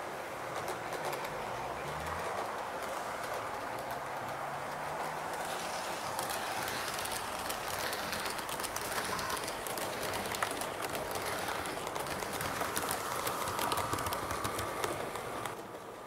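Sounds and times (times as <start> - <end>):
model train rolling: 0.0 - 16.0
wheels clicking over rail joints: 0.0 - 16.0.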